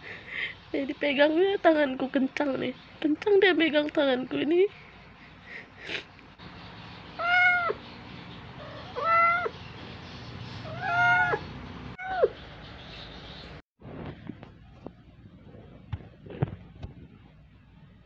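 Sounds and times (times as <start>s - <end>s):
cat meowing: 7.2s - 7.8s, 8.6s - 9.5s, 10.7s - 11.4s.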